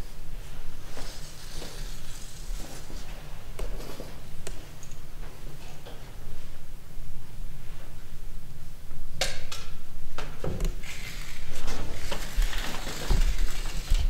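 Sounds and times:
rustling: 10.8 - 14.0.

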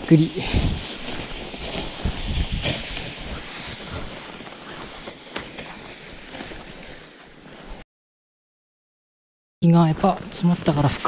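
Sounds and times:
wind rumbling on microphone: 0.0 - 5.1
footsteps crunching in snow: 0.0 - 7.8
plastic sled sliding: 0.0 - 7.8.

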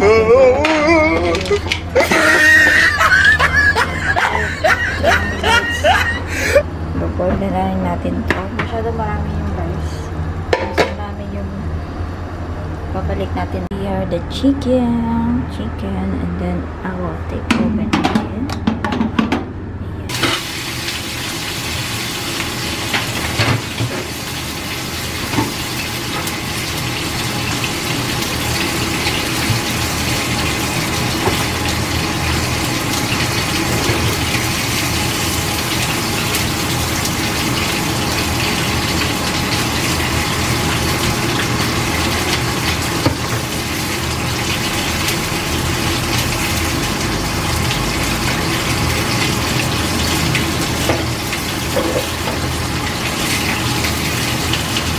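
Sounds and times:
water boiling in a pot: 20.1 - 54.9.

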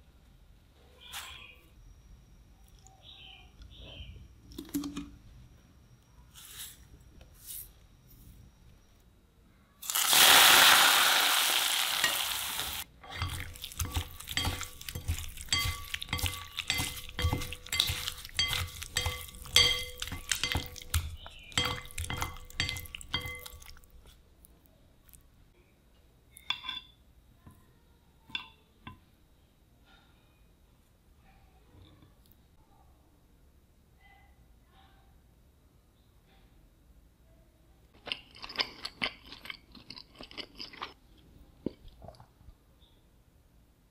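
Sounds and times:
hot oil sizzling: 9.8 - 23.4
spoon clinking against bowl: 13.0 - 24.1, 26.4 - 27.0.

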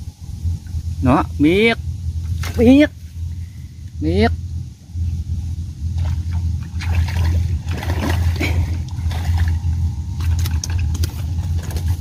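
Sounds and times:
low motor hum: 0.0 - 12.0
fish splashing at the surface: 6.0 - 9.6.

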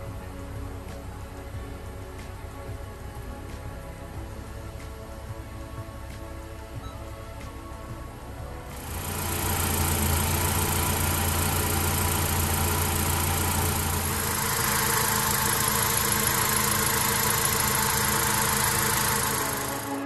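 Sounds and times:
car engine idling: 8.1 - 20.0.

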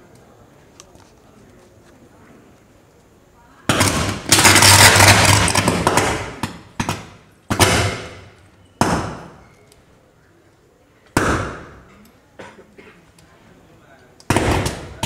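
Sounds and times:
electrical arcing: 3.7 - 9.4.

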